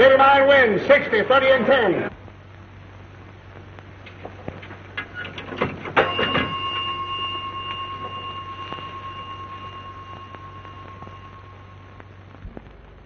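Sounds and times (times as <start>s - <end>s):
bell ringing: 5.9s - 12.2s.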